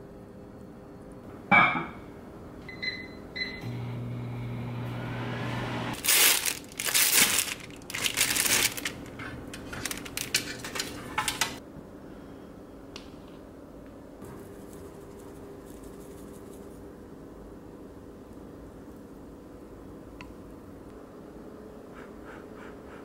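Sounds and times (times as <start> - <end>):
plastic bag crinkling: 6.0 - 11.6.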